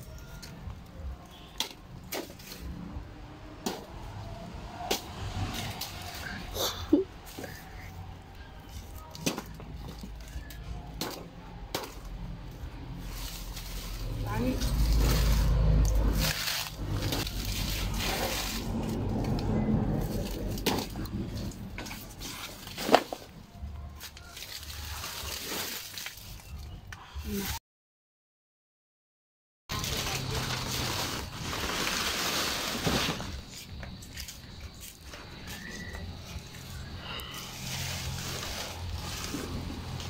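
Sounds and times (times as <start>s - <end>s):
leaves rustling and crackling: 3.9s - 8.0s, 12.0s - 27.4s, 29.7s - 40.0s.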